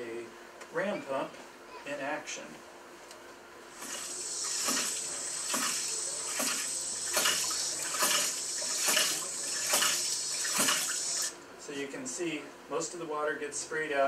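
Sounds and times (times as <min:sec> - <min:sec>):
water spraying: 0:03.8 - 0:11.4.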